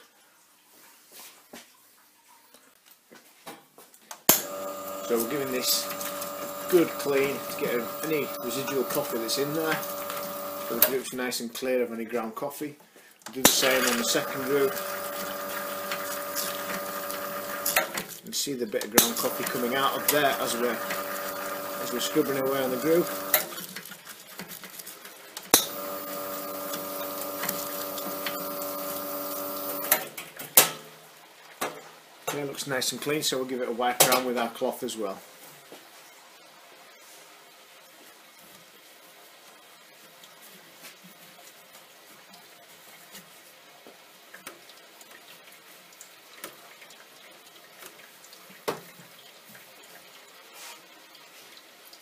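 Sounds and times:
machine hum: 4.4s - 11.0s, 13.5s - 18.0s, 19.1s - 23.5s, 25.6s - 30.0s.

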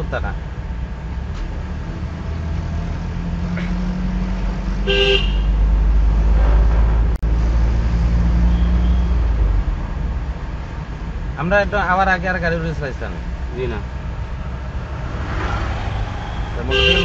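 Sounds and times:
car engine: 0.0s - 17.0s
road noise: 0.0s - 17.0s.

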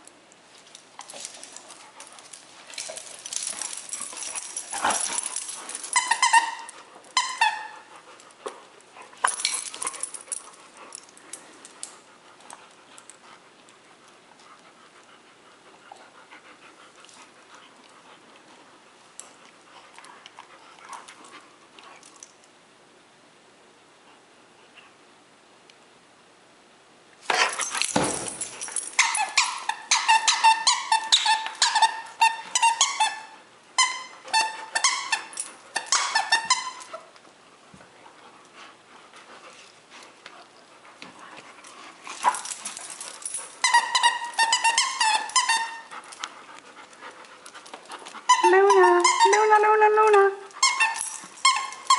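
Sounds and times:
squeaky toy squeaking: 5.9s - 7.9s, 29.0s - 36.9s, 43.6s - 45.9s, 48.3s - 49.6s, 50.6s - 51.9s
thump: 27.9s - 28.5s.

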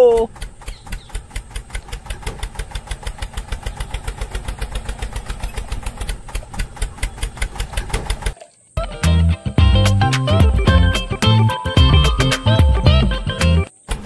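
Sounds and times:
toy tractor engine chugging: 0.0s - 9.2s.

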